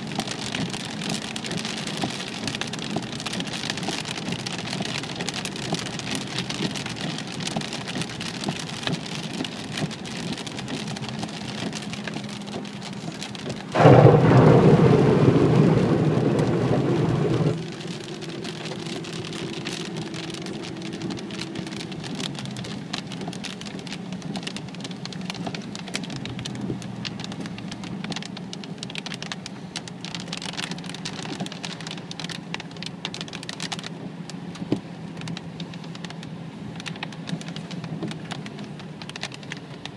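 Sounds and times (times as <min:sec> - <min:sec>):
rain on car windshield and roof: 0:00.0 - 0:39.9
loud rushing burst: 0:13.8 - 0:17.6.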